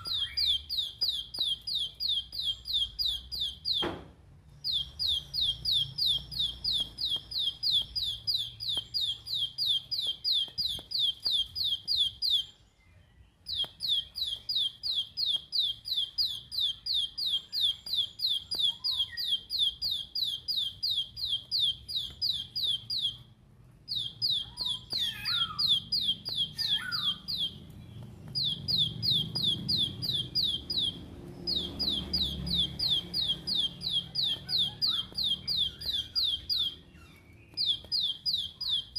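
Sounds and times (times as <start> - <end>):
bird singing rapid repeated notes: 0.0 - 38.9.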